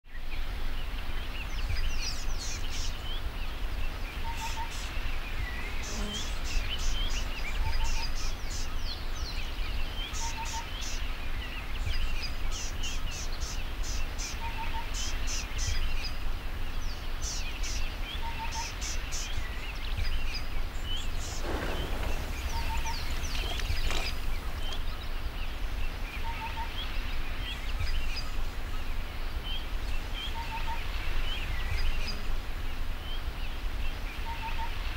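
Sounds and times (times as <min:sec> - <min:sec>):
birds chirping and trilling: 0:01.0 - 0:34.9
brief rush of noise: 0:21.1 - 0:24.7.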